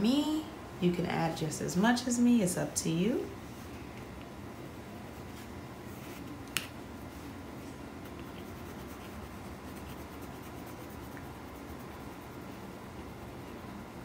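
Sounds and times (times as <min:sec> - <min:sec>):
pencil scratching on paper: 0:08.2 - 0:12.5.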